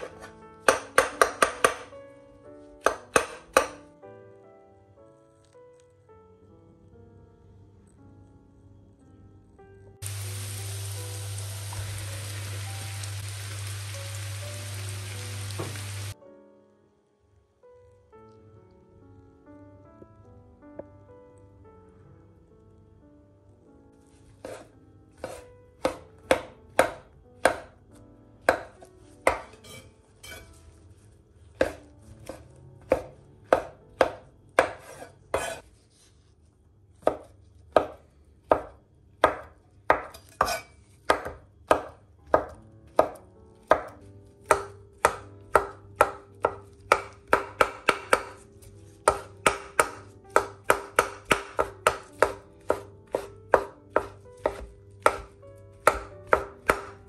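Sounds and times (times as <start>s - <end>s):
knife slicing on cutting board: 24.4s - 26.0s, 29.3s - 30.6s, 34.6s - 36.1s, 40.2s - 40.8s.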